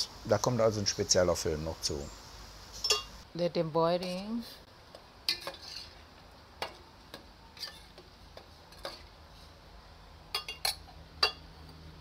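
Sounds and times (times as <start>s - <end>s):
ladle clinking against pot: 2.8s - 3.2s, 10.4s - 11.4s.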